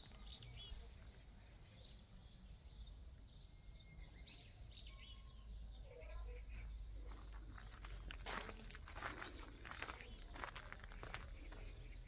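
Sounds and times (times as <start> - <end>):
small birds chirping: 0.0 - 12.0
low outdoor rumble: 6.4 - 12.0.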